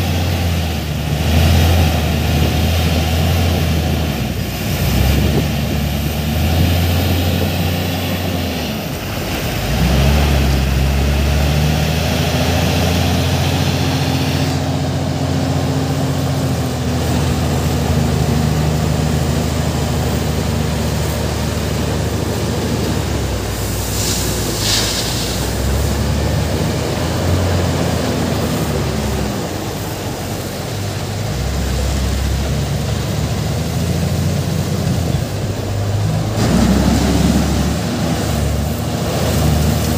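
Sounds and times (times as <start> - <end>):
diesel engine working hard: 0.0 - 39.9
short hiss: 23.6 - 26.0.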